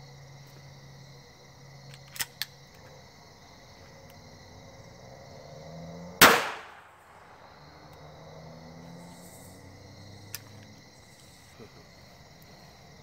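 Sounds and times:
crickets chirping: 0.0s - 13.0s
pistol shot with echo: 6.2s - 7.4s.

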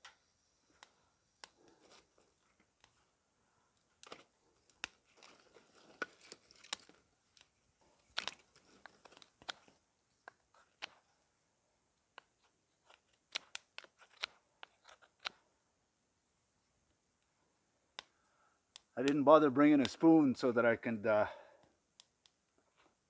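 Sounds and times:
dry sticks crunching and clicking: 3.8s - 11.0s, 12.1s - 15.3s.

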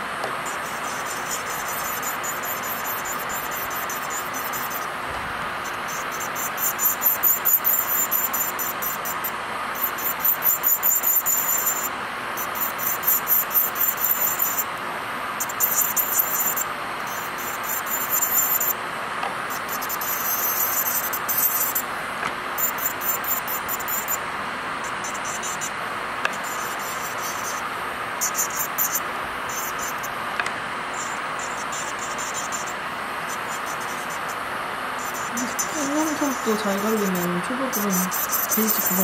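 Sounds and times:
nail drill motor whine: 0.0s - 14.8s, 15.4s - 21.9s, 35.0s - 39.0s
drill bit grinding nail: 0.4s - 4.9s, 5.7s - 9.2s, 9.8s - 14.7s, 15.4s - 18.8s, 19.5s - 21.8s, 24.9s - 27.6s, 28.2s - 34.3s, 35.0s - 39.0s.

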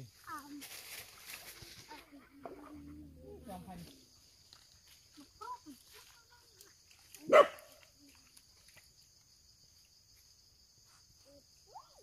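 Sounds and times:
dog barking: 7.2s - 7.7s.

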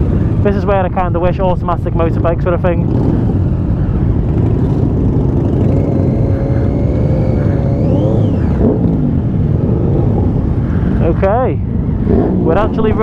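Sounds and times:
low rumble: 0.0s - 13.0s
motorcycle engines running: 0.0s - 13.0s
engine revving: 2.1s - 11.2s, 11.8s - 13.0s.

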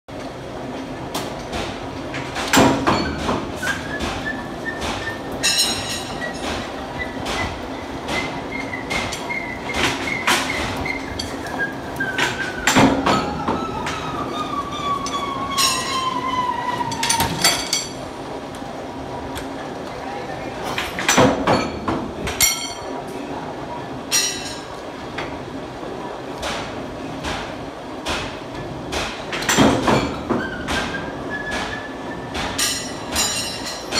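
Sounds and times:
metal clanks from handwheels: 5.4s - 6.7s, 15.0s - 16.1s.

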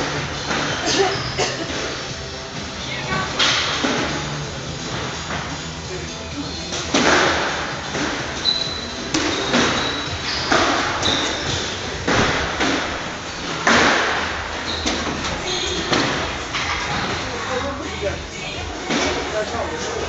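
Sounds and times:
shoe squeaks: 0.4s - 1.4s, 8.0s - 12.3s, 14.5s - 17.0s
squash balls knocking on walls: 6.7s - 17.3s.

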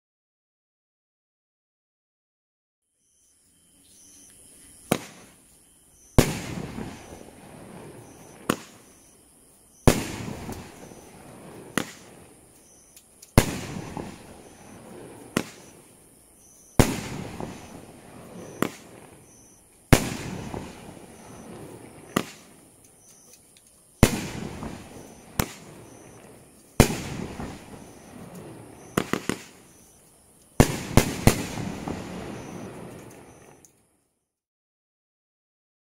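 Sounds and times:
firework launch thumps: 4.8s - 5.4s, 6.2s - 7.2s, 8.1s - 9.1s, 9.8s - 12.2s, 13.3s - 15.8s, 16.8s - 19.1s, 19.9s - 22.6s, 24.0s - 26.2s, 26.8s - 29.9s, 30.6s - 33.6s.

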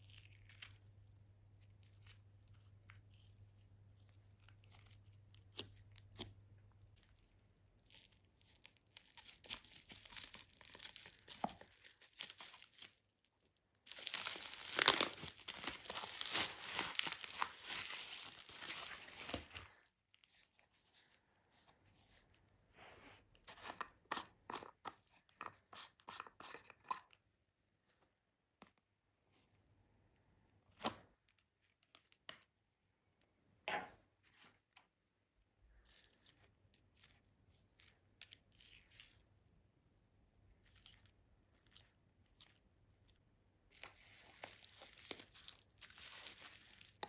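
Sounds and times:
bubble wrap crinkling and crackling: 0.0s - 21.2s, 40.4s - 47.0s.

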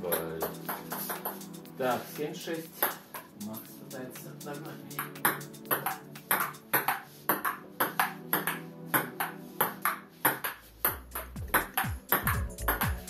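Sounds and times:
background music: 0.0s - 13.0s
table tennis ball clicking: 5.0s - 8.6s, 10.3s - 12.8s
low bass line: 10.9s - 13.0s.

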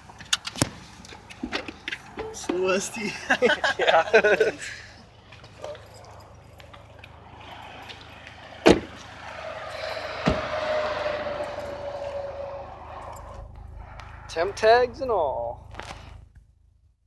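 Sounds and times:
vehicle noise: 0.0s - 17.0s
car doors thumping shut: 8.6s - 9.0s.

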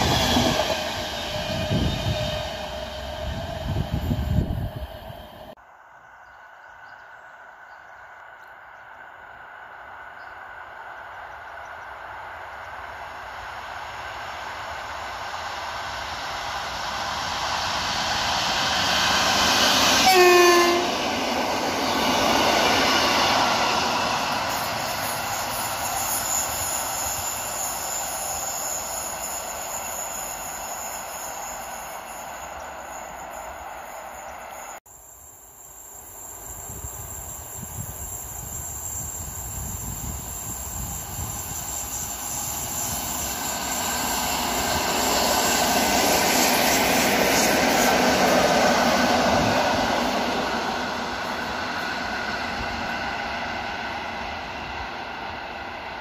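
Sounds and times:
distant train rumble: 0.0s - 5.6s, 6.8s - 56.0s
train passing at speed: 0.0s - 56.0s
train horn blast: 20.0s - 21.0s.

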